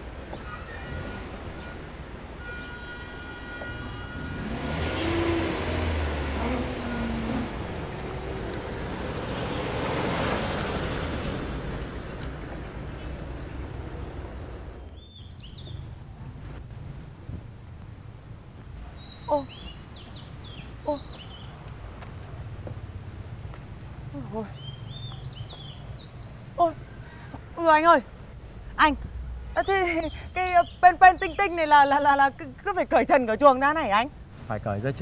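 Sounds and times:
passing traffic: 0:00.0 - 0:35.0
birds chirping: 0:04.2 - 0:10.0, 0:12.4 - 0:16.0, 0:18.6 - 0:23.0, 0:24.1 - 0:34.9
jeep engine running: 0:04.2 - 0:14.9.

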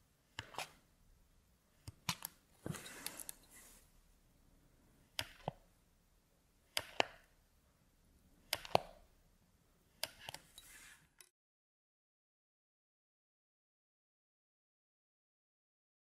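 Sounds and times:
blade slicing clay and clicking on tile: 0:00.4 - 0:00.8, 0:06.7 - 0:07.3, 0:08.5 - 0:09.0.

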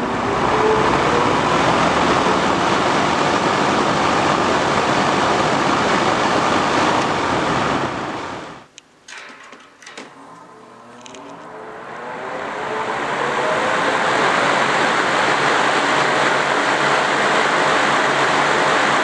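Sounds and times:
drum fan rushing air: 0:09.6 - 0:19.0.

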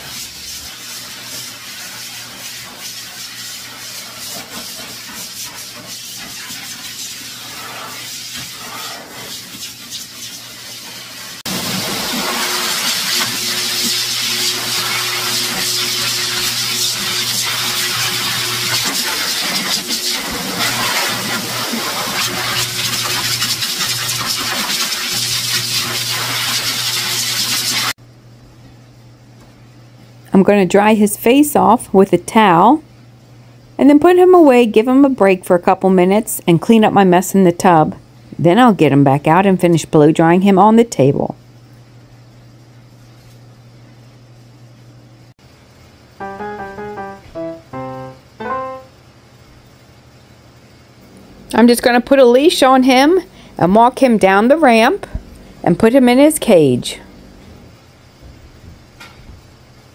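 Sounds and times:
dog dryer blowing air: 0:05.6 - 0:27.9.

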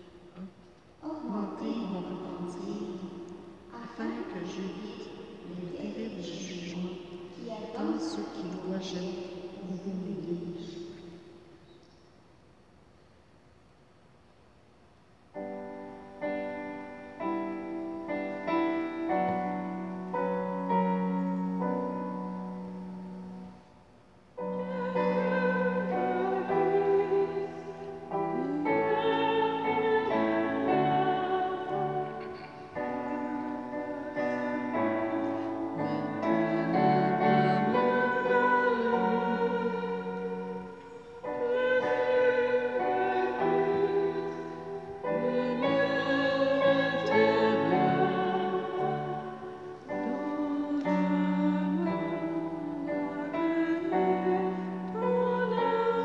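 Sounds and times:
piano playing hymn chords: 0:15.3 - 0:56.0
person singing with vibrato: 0:17.0 - 0:56.0.

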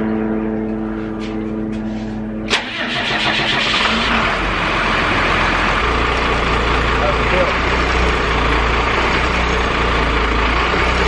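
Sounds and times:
van engine starting and rumbling: 0:02.3 - 0:11.0.

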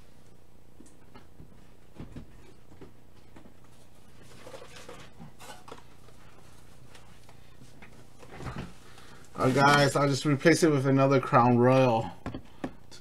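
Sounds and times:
card packs rustling: 0:04.2 - 0:12.1.

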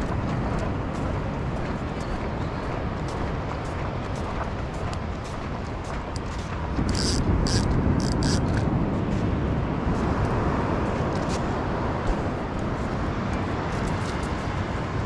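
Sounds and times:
wind: 0:00.0 - 0:15.0
wind rumble on microphone: 0:00.0 - 0:15.0.

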